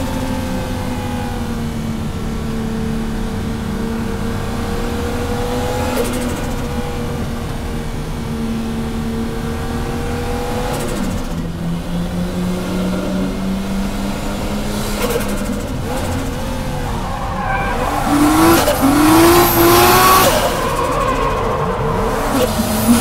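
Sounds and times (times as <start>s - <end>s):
car engine running and revving: 0.0s - 23.0s
tyre squeal: 16.0s - 23.0s.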